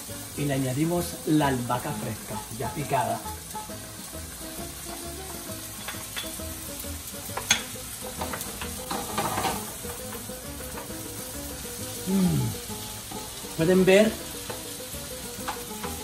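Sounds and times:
food sizzling in a frying pan: 0.0 - 16.0
wooden spoon scraping pan: 8.3 - 9.7.

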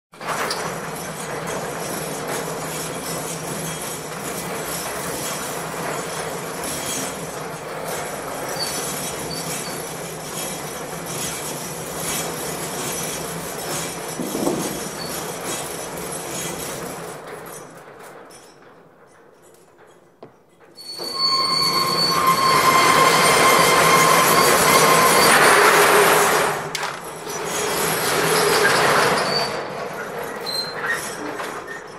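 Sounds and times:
metal roller shutter rattling: 0.2 - 20.0, 20.8 - 31.9.

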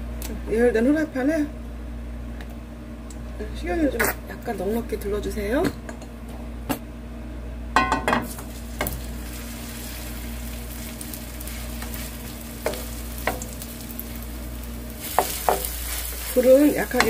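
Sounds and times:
batter sizzling in hot oil: 8.2 - 17.0
metal spoon tapping a pan: 15.1 - 15.7.

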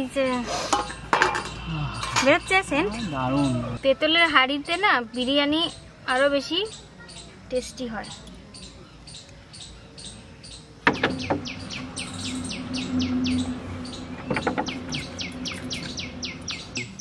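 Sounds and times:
bird chirping: 0.0 - 17.0.

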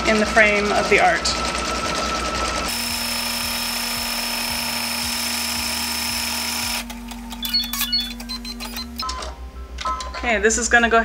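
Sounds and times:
motors whirring: 0.0 - 9.1
machine clicks: 6.1 - 9.3
short high beeps: 7.4 - 9.0.

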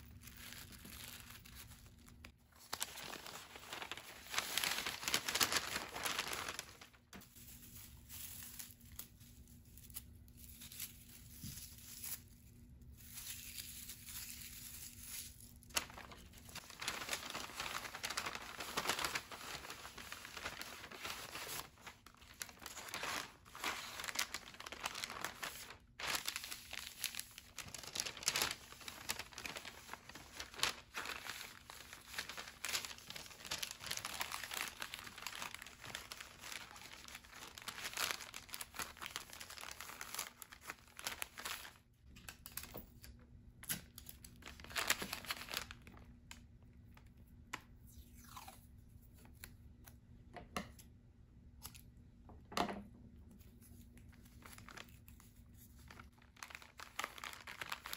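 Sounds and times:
paper bag crinkling: 0.1 - 9.2, 12.9 - 41.8, 44.3 - 46.1, 54.3 - 55.1, 55.8 - 57.9.

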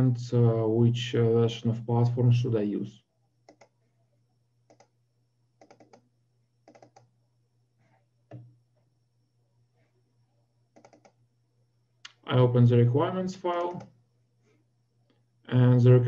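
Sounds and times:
low steady hum: 0.0 - 16.0
computer mouse clicks: 3.4 - 3.8, 4.7 - 5.0, 5.6 - 7.1, 10.7 - 11.2, 13.5 - 14.0.

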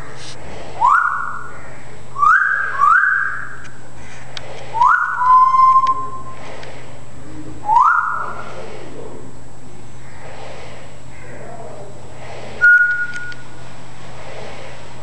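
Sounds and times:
parrot whistling: 0.8 - 1.5, 2.2 - 3.7, 4.8 - 6.4, 7.6 - 8.4, 12.6 - 13.4.

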